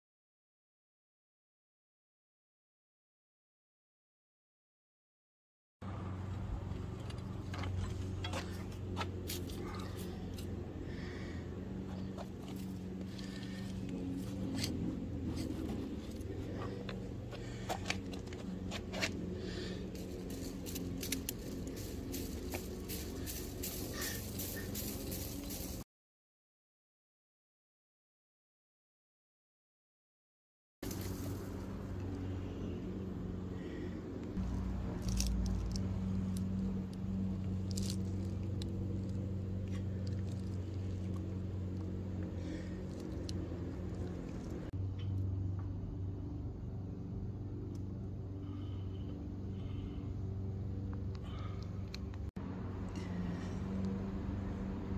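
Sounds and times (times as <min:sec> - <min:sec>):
steady low hum: 0:05.8 - 0:25.8, 0:30.8 - 0:54.9
garden fork scraping through leaves: 0:07.7 - 0:11.2, 0:12.0 - 0:25.8, 0:30.8 - 0:32.0, 0:34.4 - 0:35.9, 0:37.5 - 0:41.4
faint ticks and rustles: 0:19.4 - 0:25.8, 0:34.9 - 0:44.7.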